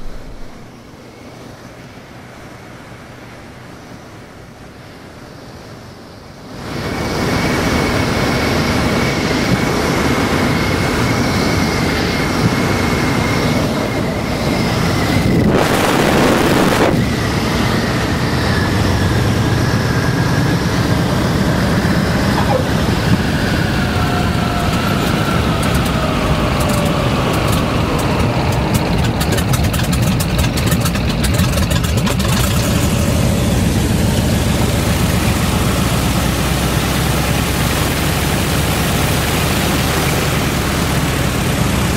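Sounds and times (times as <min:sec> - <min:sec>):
rough low rumble: 0:00.0 - 0:00.8, 0:19.7 - 0:24.6
whine falling in pitch: 0:00.0 - 0:01.1, 0:18.4 - 0:26.0
wind rush: 0:00.0 - 0:01.5, 0:06.6 - 0:29.5
radial engine and propeller: 0:00.0 - 0:41.9.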